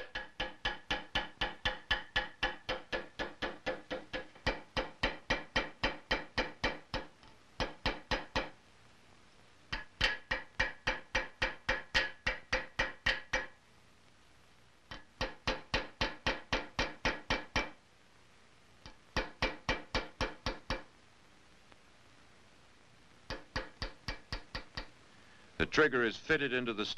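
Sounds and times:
hammer tapping metal on anvil: 0.0 - 8.6, 9.7 - 13.6, 14.9 - 17.8, 18.8 - 20.9, 23.3 - 25.0.

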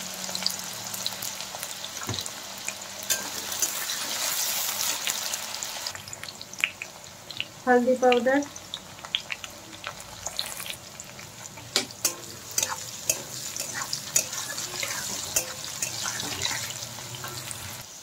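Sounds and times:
vegetables sizzling in oil: 0.0 - 18.0
metal spatula scraping: 3.1 - 5.0, 11.5 - 17.8.

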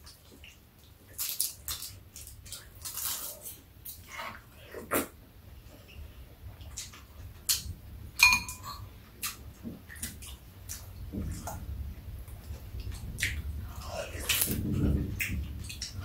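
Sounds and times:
utensil clinking on dish: 8.2 - 8.8.

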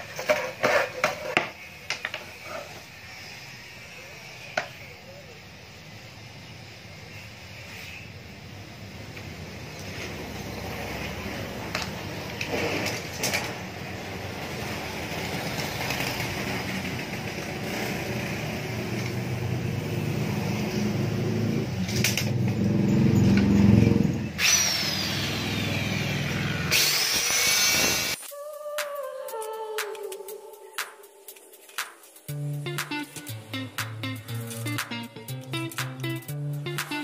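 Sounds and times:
workshop low rumble: 0.0 - 27.1, 28.0 - 37.0
electric saw cutting wood: 14.1 - 28.3.

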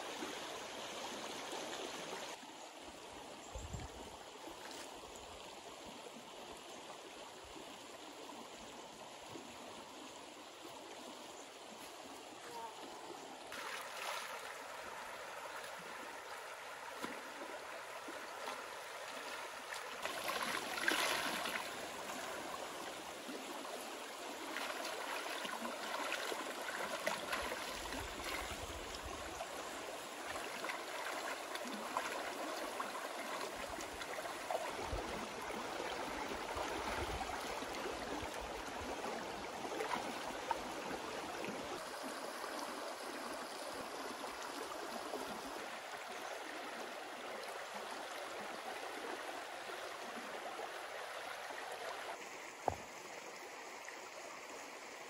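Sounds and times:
stream flowing over stones: 0.0 - 55.0
splashing water: 13.5 - 15.0, 16.8 - 22.6, 24.4 - 29.2, 30.2 - 37.8.

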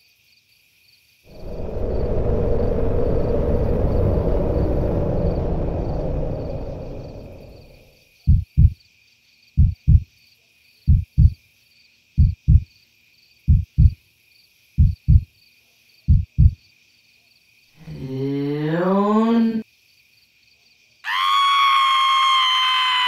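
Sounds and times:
low rumble: 1.3 - 7.9
heartbeat double thumps: 8.3 - 8.8, 9.6 - 10.1, 10.9 - 11.4, 12.2 - 12.6, 13.5 - 14.0, 14.8 - 15.3, 16.1 - 16.6.

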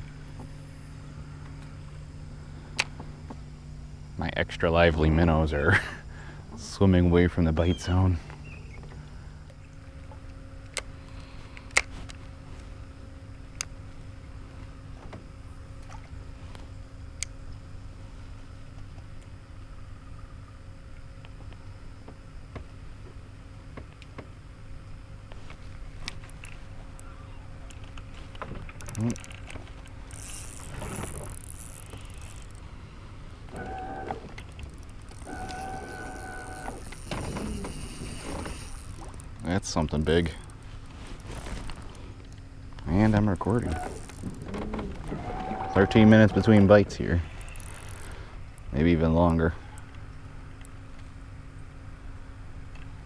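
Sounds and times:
faint steady tone: 28.8 - 53.0
short steady whine: 28.9 - 50.8
fishing line hissing off reel: 30.0 - 32.8, 33.5 - 39.4, 43.4 - 46.6, 47.2 - 48.4
electric motor humming: 30.0 - 48.7.

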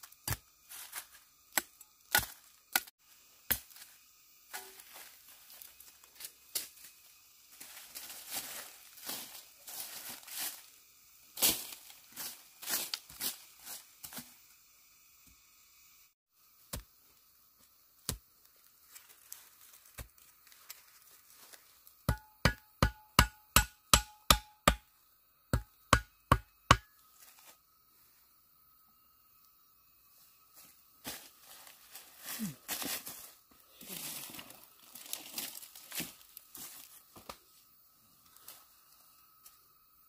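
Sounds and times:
chopping strikes: 22.1 - 24.8.

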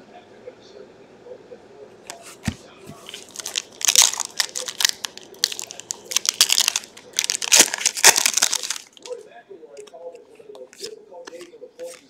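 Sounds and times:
card pack wrapper tearing and crinkling: 2.4 - 9.2, 10.6 - 12.0.

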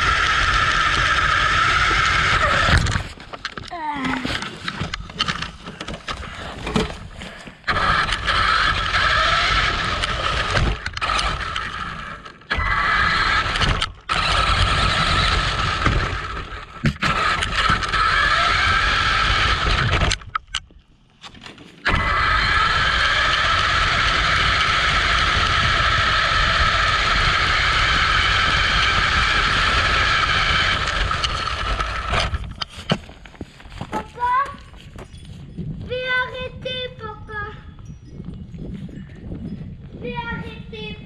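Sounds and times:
rc car motor whining: 0.0 - 3.1, 7.6 - 20.4, 21.8 - 32.7
tyre and road noise: 0.0 - 36.8.

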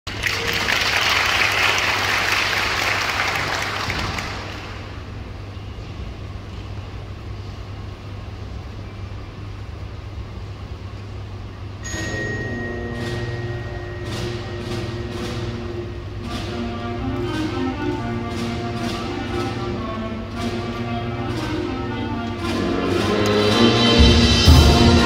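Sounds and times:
audience applause: 0.1 - 5.0
steady low hum: 4.4 - 25.0
concert band playing: 11.9 - 25.0.

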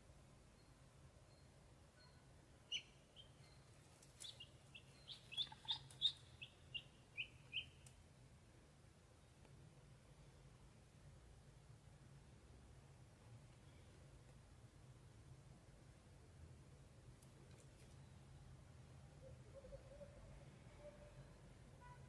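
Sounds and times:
faint low hum: 0.0 - 22.0
ducklings peeping: 2.7 - 7.8.

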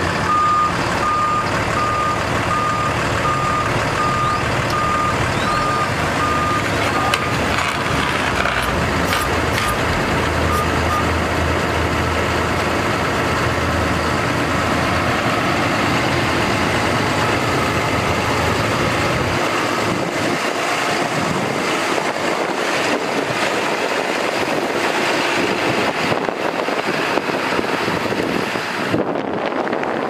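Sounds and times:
diesel truck engine rumbling: 0.0 - 30.0.

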